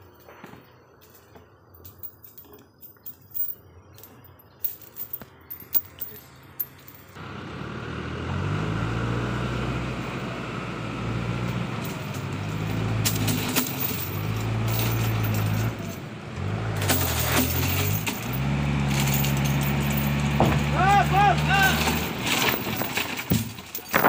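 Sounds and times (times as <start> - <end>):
truck diesel engine running: 7.1 - 23.0
sharp metallic clanks: 11.7 - 16.1, 16.7 - 24.0.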